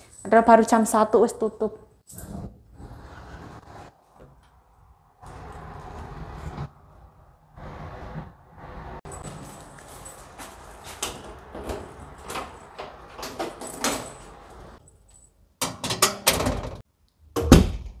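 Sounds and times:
footsteps: 9.1 - 13.5.

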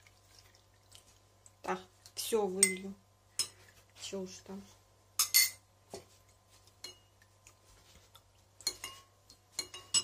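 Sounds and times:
metal spoon clinking on ceramic: 5.2 - 5.6, 8.6 - 10.0.

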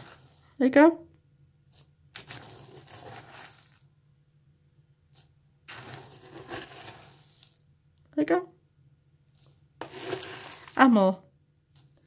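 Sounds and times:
spoon scooping dry seed mix: 0.0 - 0.8, 1.6 - 4.0, 5.0 - 7.7, 9.3 - 11.1, 11.7 - 12.0.

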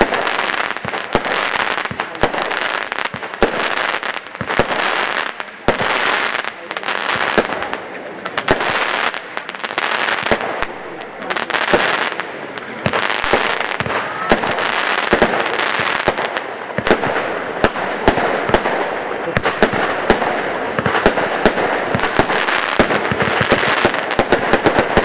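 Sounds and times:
firework bangs: 0.0 - 25.0.

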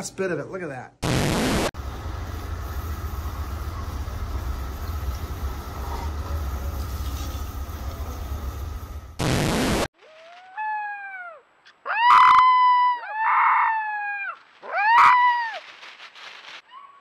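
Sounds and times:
burst of static noise: 1.0 - 9.9
low rumble: 1.8 - 9.2.

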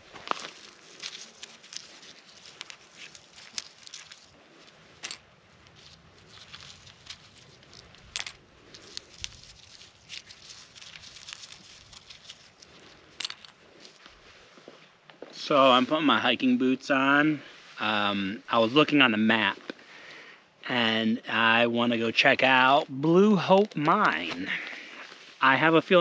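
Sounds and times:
plastic bag rustling: 0.0 - 14.0.

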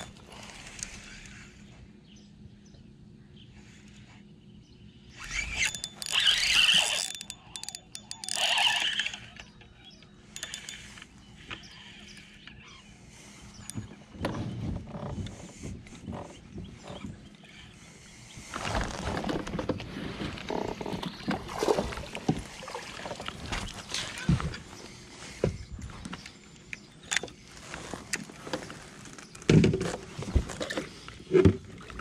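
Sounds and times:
spinning reel being cranked: 5.2 - 9.4, 10.4 - 11.0.

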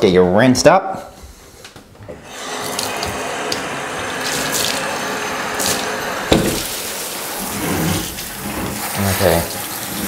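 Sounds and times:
tap water rushing into tub: 2.1 - 10.0
sharp knock: 6.3 - 6.7.

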